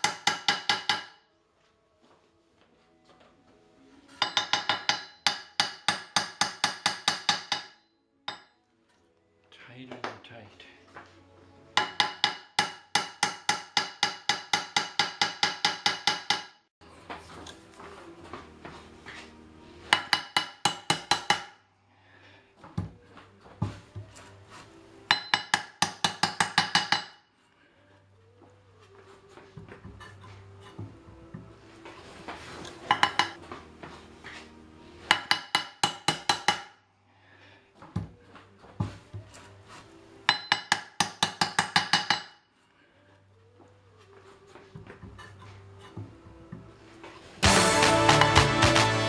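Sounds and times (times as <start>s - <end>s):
hammer tapping on metal: 0.0s - 1.2s, 4.2s - 8.5s, 11.8s - 16.6s, 19.9s - 21.6s, 25.1s - 27.2s, 32.9s - 33.4s, 35.1s - 36.7s, 40.3s - 42.4s.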